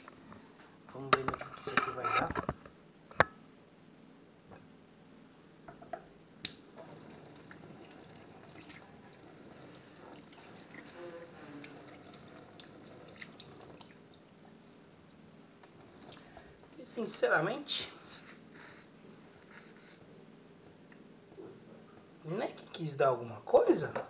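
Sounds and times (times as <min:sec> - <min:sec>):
water dripping into sink: 0:06.4 - 0:10.9, 0:11.6 - 0:14.3.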